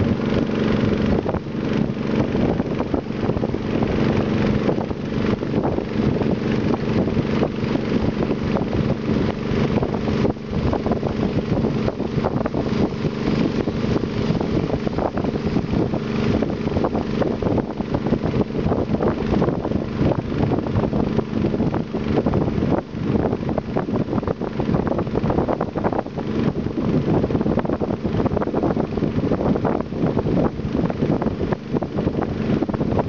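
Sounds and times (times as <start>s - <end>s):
water hissing past hull: 0.0s - 23.3s
boat engine droning: 0.0s - 33.0s
wind rushing over microphone: 0.0s - 33.0s.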